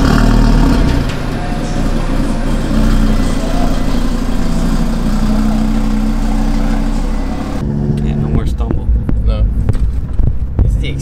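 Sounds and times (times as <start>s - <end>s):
car engine running: 0.0s - 11.0s
road and wind noise: 4.2s - 11.0s.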